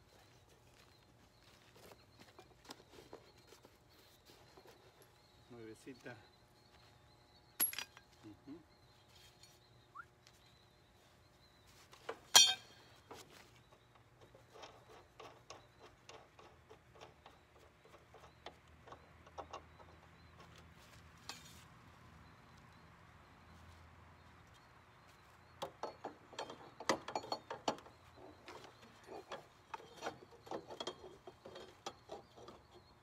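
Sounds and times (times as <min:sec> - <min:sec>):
sharp metallic clink: 0:12.3 - 0:12.8.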